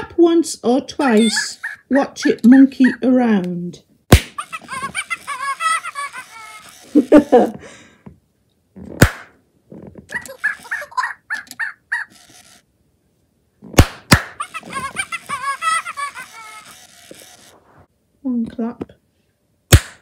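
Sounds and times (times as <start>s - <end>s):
toy electronic monkey chatter: 1.1s - 3.0s, 4.4s - 7.5s, 10.1s - 12.6s, 14.4s - 17.6s
hand claps: 13.8s - 14.4s.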